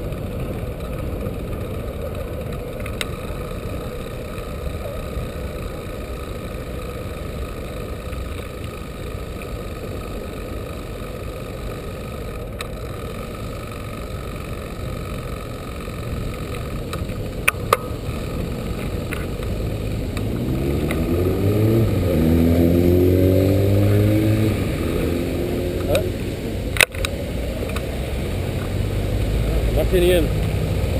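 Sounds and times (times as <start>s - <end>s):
motorcycle engine accelerating: 0.0s - 30.9s
wind and road rush: 0.0s - 30.9s
sharp clicks: 26.7s - 27.9s.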